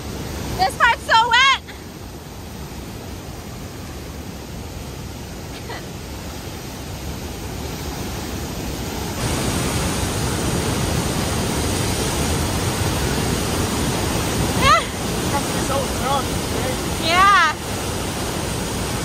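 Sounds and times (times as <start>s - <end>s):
waterfall crashing onto deck: 8.9s - 19.0s.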